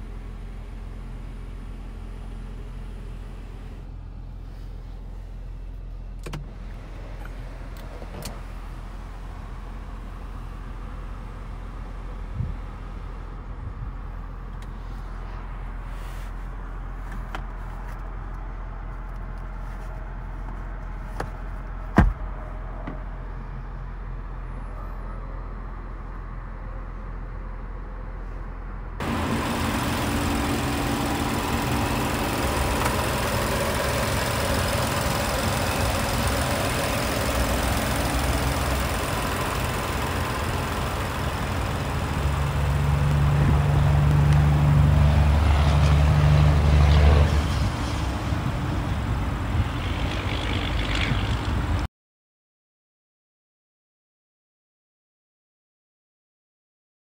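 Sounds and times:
car engine running: 0:28.9 - 0:46.8, 0:47.6 - 0:51.8.

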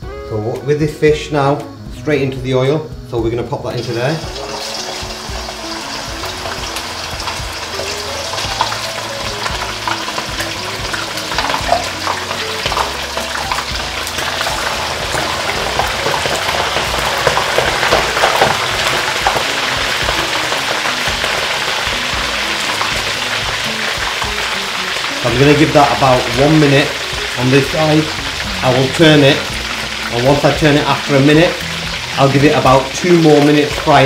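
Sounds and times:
fish frying in oil: 0:03.7 - 0:34.0.

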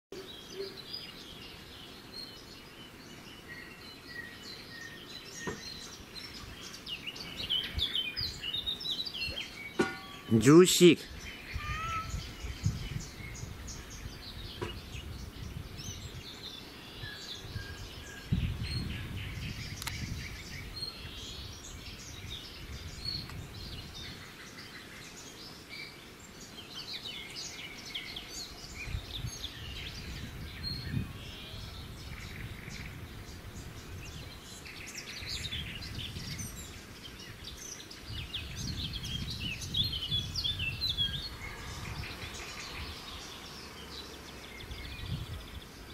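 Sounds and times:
songbirds chirping: 0:00.1 - 0:45.9.

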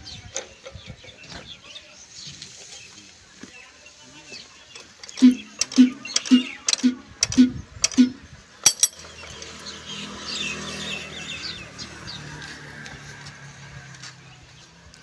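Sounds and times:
fuel pump metallic clicks: 0:05.0 - 0:09.5.

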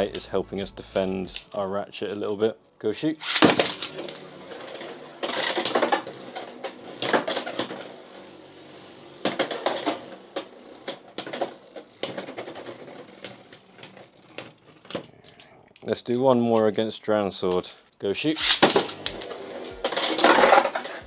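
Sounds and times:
spinning tops clattering: 0:03.2 - 0:14.6, 0:18.4 - 0:21.0
spinning top whir: 0:03.2 - 0:15.0, 0:18.4 - 0:21.0.

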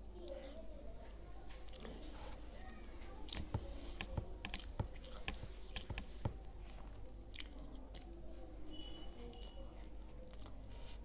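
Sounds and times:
mouth chewing wet clicks: 0:01.6 - 0:02.2, 0:03.2 - 0:06.2, 0:07.1 - 0:08.2, 0:09.2 - 0:10.7.

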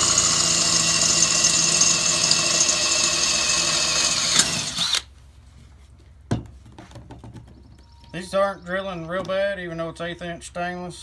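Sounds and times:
cordless drill boring steel: 0:00.0 - 0:05.1.

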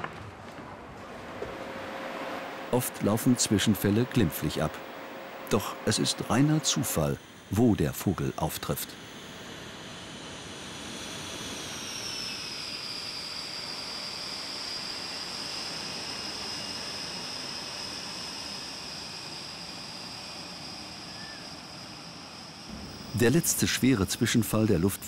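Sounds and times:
jet engines whining: 0:00.7 - 0:25.0
rushing noise: 0:01.0 - 0:07.2.

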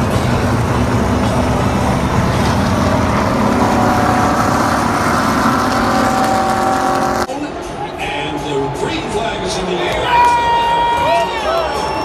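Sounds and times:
race car engines running past: 0:00.0 - 0:08.2.

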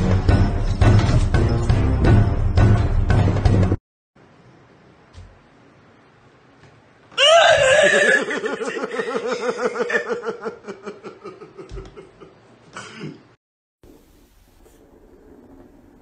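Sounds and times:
woman laughing: 0:07.5 - 0:12.4.

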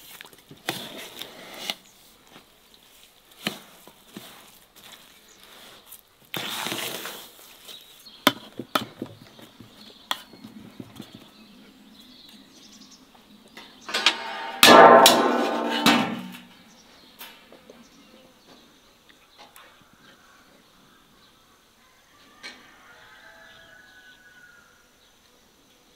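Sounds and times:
metal spoon scraping a basin: 0:13.9 - 0:16.4.

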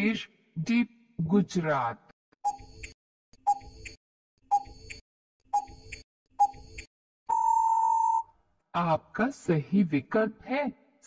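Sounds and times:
clock tick-tock: 0:02.5 - 0:05.0, 0:05.6 - 0:06.9.

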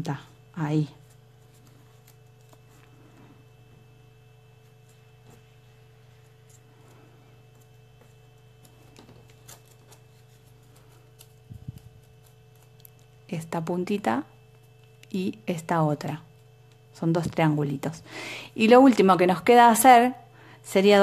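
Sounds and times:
low electrical hum: 0:00.0 - 0:21.0
paper crinkling and folding: 0:00.8 - 0:13.3.

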